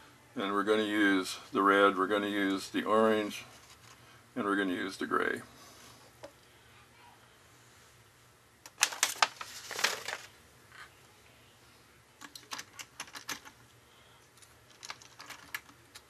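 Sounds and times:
paper rustle: 8.8s - 10.3s.

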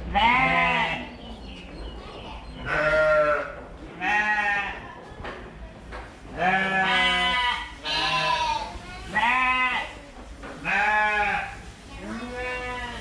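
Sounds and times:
sheep bleating: 0.1s - 1.1s, 2.6s - 4.8s, 6.4s - 9.9s.

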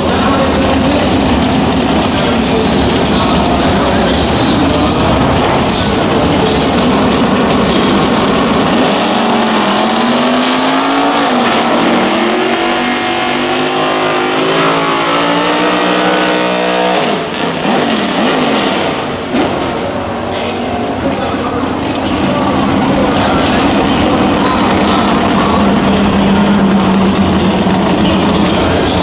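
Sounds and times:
car engine revving high: 0.0s - 20.2s, 21.6s - 29.0s.

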